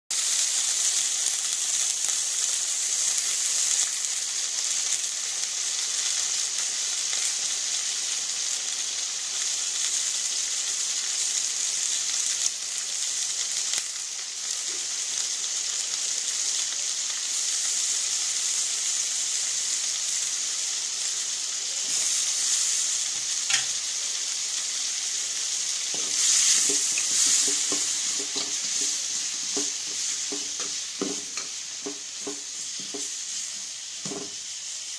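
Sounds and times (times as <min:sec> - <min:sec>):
vegetables sizzling in hot oil: 0:00.1 - 0:34.9
spatula scraping a pan: 0:25.9 - 0:34.4.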